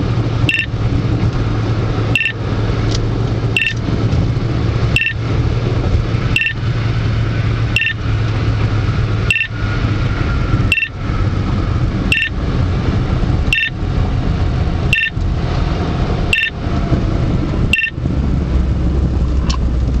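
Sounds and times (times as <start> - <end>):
road and engine noise in car: 0.0 - 20.0
radar detector beeps: 0.5 - 0.7, 2.1 - 2.4, 3.6 - 3.8, 5.0 - 5.2, 6.4 - 6.6, 7.8 - 8.0, 9.3 - 9.5, 10.7 - 10.9, 12.1 - 12.3, 13.5 - 13.8, 14.9 - 15.2, 16.3 - 16.6, 17.7 - 18.0.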